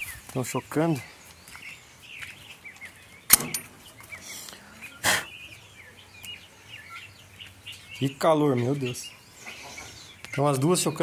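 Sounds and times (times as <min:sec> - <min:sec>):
faint bird chirps: 0:00.0 - 0:11.0
sharp click: 0:03.3 - 0:03.7
wire door scraping: 0:03.3 - 0:04.1.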